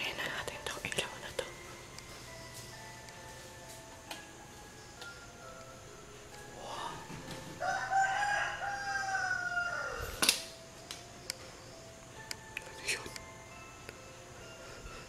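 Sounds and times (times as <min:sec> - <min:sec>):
rooster crowing: 0:06.6 - 0:10.2.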